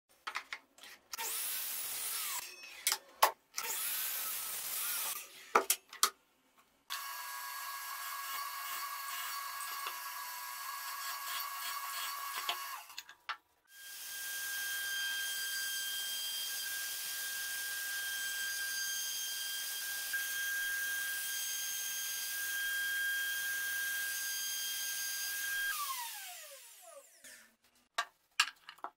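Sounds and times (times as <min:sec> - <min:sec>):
mitre saw cutting wood: 0:01.2 - 0:02.4, 0:03.6 - 0:05.3, 0:06.9 - 0:12.9, 0:13.7 - 0:27.6
drill boring into wood: 0:01.2 - 0:02.5, 0:03.6 - 0:05.2, 0:06.9 - 0:12.9, 0:13.7 - 0:27.4
router whining: 0:01.2 - 0:02.5, 0:06.9 - 0:13.0, 0:13.7 - 0:27.6.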